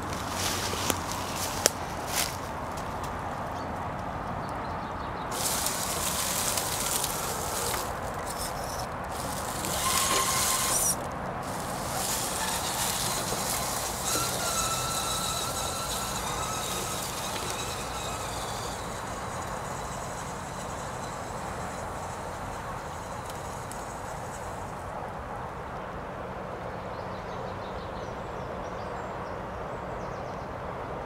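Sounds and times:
tyres rustling through leaves: 0.0s - 4.4s, 5.2s - 25.9s
electric motor whining: 5.3s - 25.0s.

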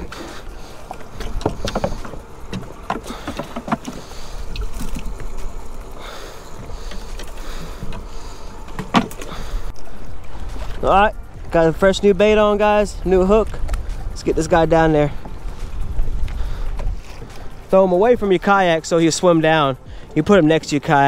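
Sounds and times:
gear knocking on plastic kayak: 1.0s - 5.2s.

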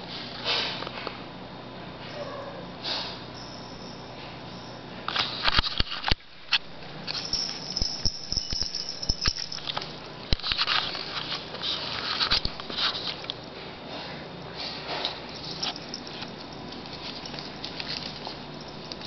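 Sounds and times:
pets moving in plastic playpen: 13.9s - 19.0s.

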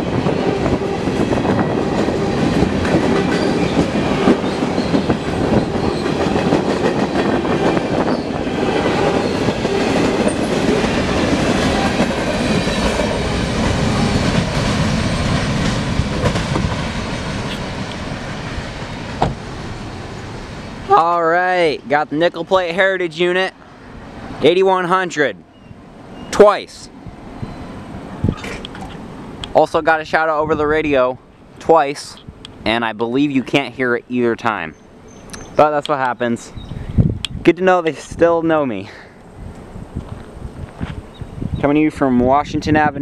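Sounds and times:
clickety-clack over rail joints: 0.0s - 18.2s
train wheels rumbling on rail: 0.0s - 24.8s.

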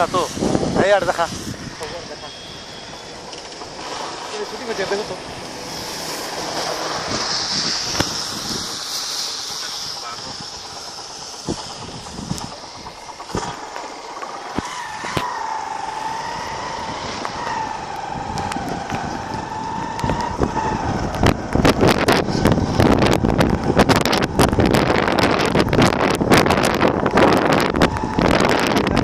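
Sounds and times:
vehicle ride whine: 0.0s - 29.0s
wind buffeting microphone: 0.0s - 29.0s
sharp rattling clicks: 2.8s - 16.1s.

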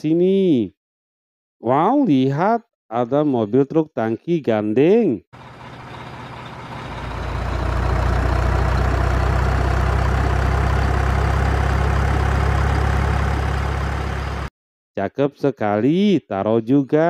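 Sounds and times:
diesel truck engine running: 5.4s - 14.5s.

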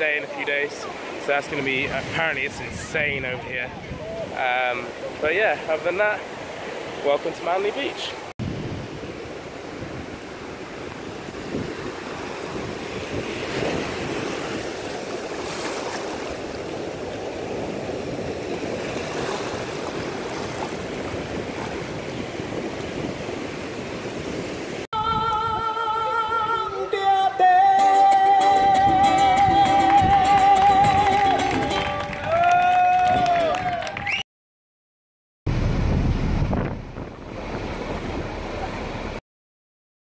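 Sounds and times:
small waves washing over sand: 0.0s - 24.9s
person singing: 25.0s - 32.3s
acoustic guitar strumming: 27.0s - 32.1s.

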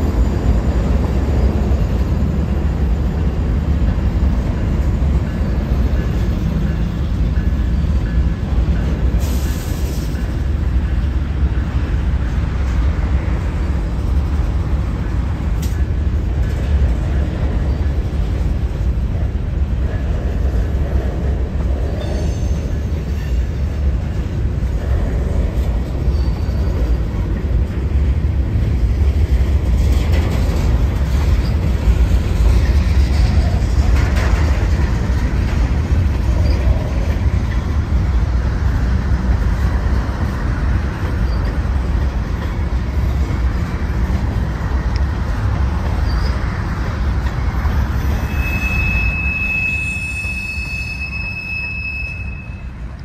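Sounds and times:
train wheels rumbling on rails: 0.0s - 53.0s
faint wheel squeals: 22.0s - 23.4s, 26.0s - 27.0s, 46.0s - 46.6s, 48.0s - 52.8s.

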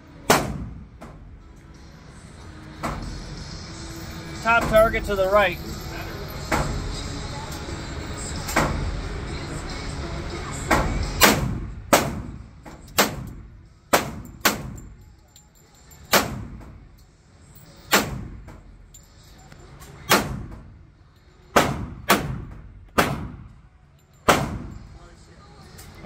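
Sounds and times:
pistol shots echoing indoors: 11.2s - 14.9s, 21.5s - 23.5s, 24.2s - 24.8s.

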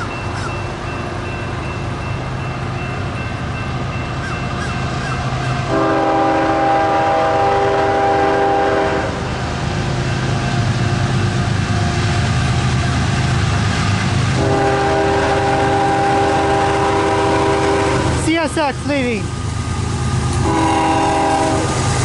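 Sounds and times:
diesel locomotive rumble: 0.0s - 22.0s
train horn blast: 5.6s - 9.3s, 14.3s - 18.2s, 20.3s - 21.9s.

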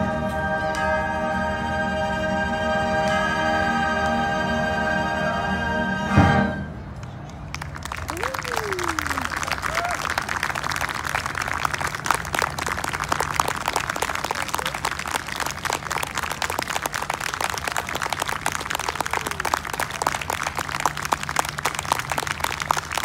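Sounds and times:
audience applauding: 7.3s - 23.0s.

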